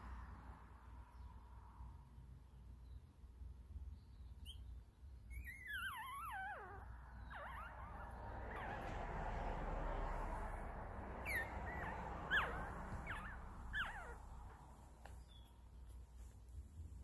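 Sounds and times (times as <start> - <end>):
puppy whimpering: 5.3 - 9.2, 11.2 - 14.6.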